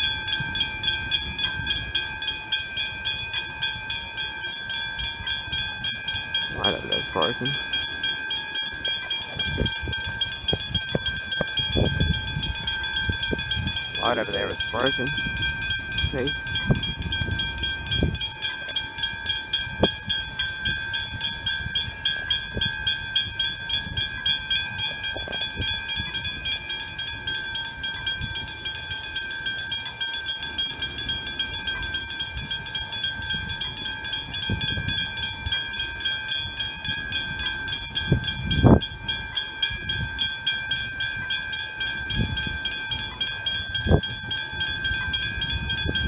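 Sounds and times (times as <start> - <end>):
level crossing bells ringing: 0.0 - 46.0.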